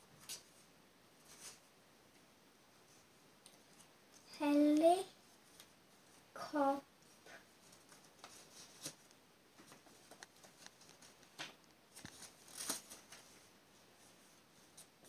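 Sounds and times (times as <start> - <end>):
paper card rustling and crinkling: 7.1 - 13.5.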